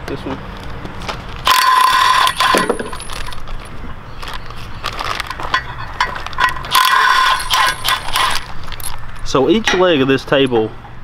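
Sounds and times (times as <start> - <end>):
cordless drill whirring: 1.5 - 2.7, 6.7 - 8.4
small metal clinks: 1.5 - 3.7, 5.2 - 9.3
plastic wrap crinkling: 4.2 - 6.5.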